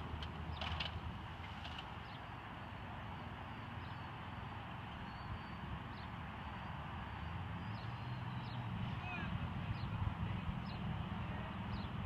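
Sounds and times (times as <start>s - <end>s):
wind rumbling on microphone: 4.9s - 12.0s.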